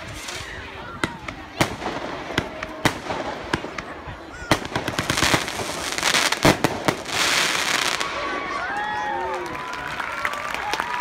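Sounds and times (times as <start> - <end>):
fireworks banging and crackling: 0.0 - 8.8.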